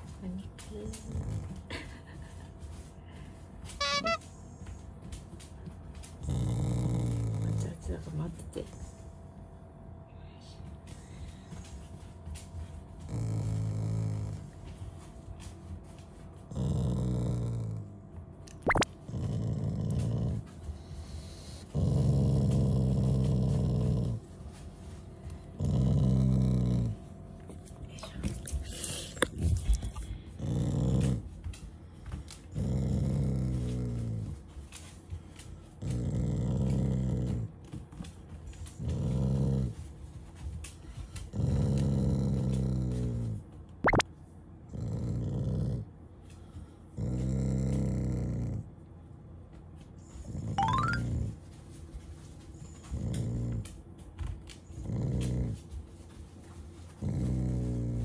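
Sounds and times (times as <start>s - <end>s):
dog growling: 6.2s - 7.7s, 13.0s - 14.5s, 16.5s - 17.9s, 18.7s - 20.4s, 21.7s - 24.2s, 25.6s - 27.0s, 30.4s - 31.3s, 32.5s - 34.4s, 35.9s - 37.5s, 41.3s - 44.0s, 47.0s - 48.6s, 57.0s - 58.0s.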